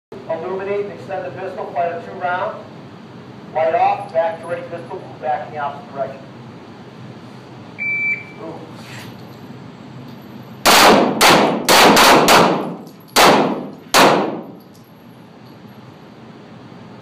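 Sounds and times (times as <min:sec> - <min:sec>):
handgun shots with echo: 0:10.7 - 0:14.6.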